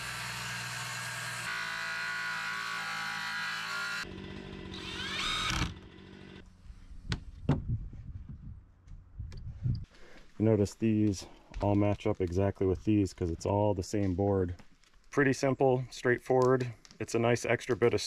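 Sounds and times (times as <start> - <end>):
cordless drill whine: 0.0 - 6.4
power saw cutting boards: 0.0 - 6.4.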